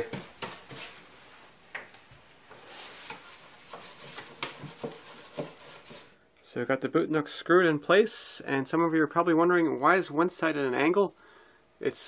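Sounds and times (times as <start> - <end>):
soft brush strokes on wood: 2.5 - 6.2.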